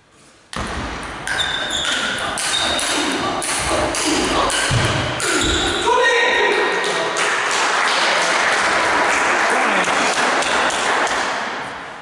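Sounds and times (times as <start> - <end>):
crowd applauding: 7.0 - 11.2.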